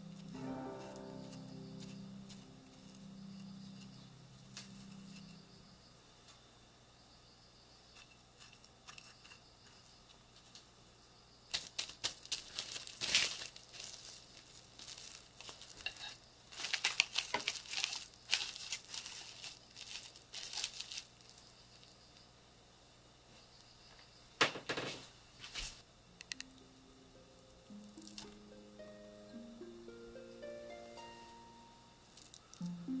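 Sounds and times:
cling film crinkling: 0:11.5 - 0:22.2.

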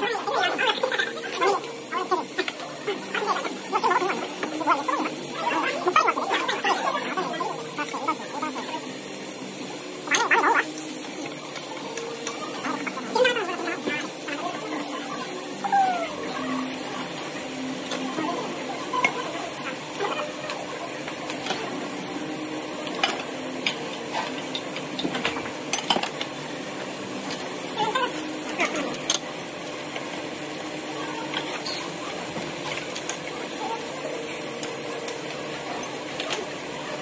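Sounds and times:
steady sizzling hiss: 0:00.0 - 0:37.0
dishes and cutlery clinking: 0:23.0 - 0:26.2.

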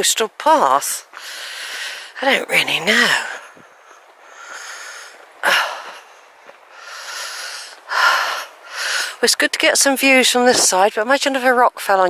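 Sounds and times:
person breathing hard: 0:01.2 - 0:02.2, 0:03.4 - 0:09.2.

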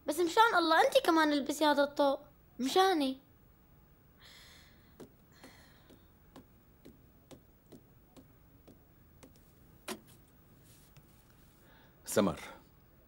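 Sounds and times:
faint footsteps: 0:04.9 - 0:11.7.

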